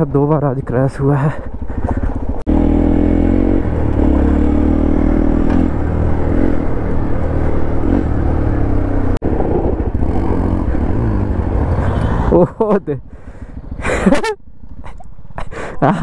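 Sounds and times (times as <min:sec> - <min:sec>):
motorcycle engine revving: 0:01.2 - 0:13.9.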